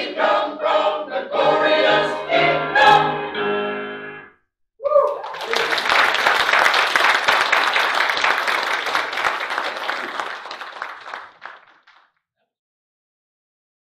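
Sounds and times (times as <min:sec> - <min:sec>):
congregation clapping: 0:05.0 - 0:12.2.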